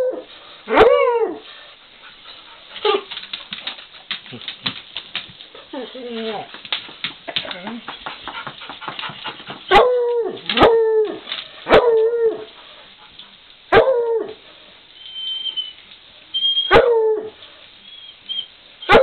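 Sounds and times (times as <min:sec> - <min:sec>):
dog bark-howling: 0:09.7 - 0:12.0.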